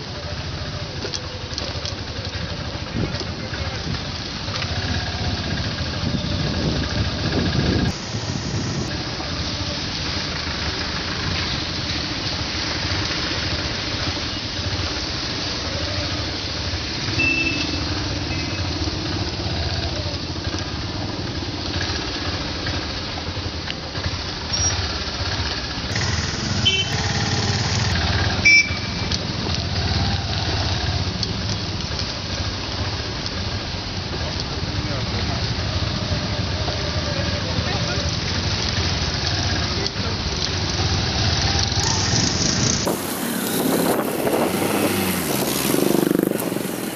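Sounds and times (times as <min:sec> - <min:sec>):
car and motorcycle engines: 0:00.0 - 0:46.9
tyre and road noise: 0:00.0 - 0:46.9
sharp vehicle horn beep: 0:17.1 - 0:18.6, 0:26.4 - 0:27.8, 0:28.4 - 0:29.1.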